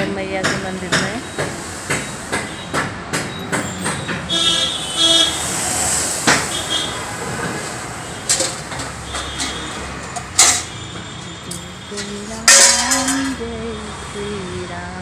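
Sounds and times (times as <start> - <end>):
sharp metallic clinks and knocks: 8.2 - 13.5.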